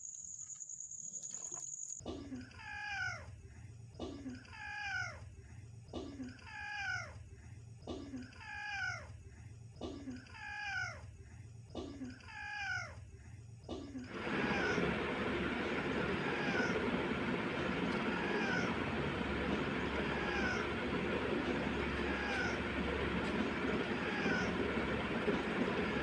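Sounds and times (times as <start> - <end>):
steady low hum: 3.2 - 26.0
cat meowing: 18.1 - 18.7, 20.1 - 20.6.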